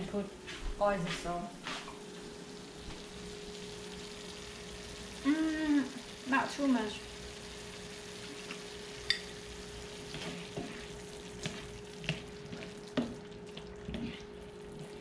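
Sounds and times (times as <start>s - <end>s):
stir-fry sizzling in frying pan: 1.6s - 15.0s
spatula scraping pan: 10.0s - 15.0s.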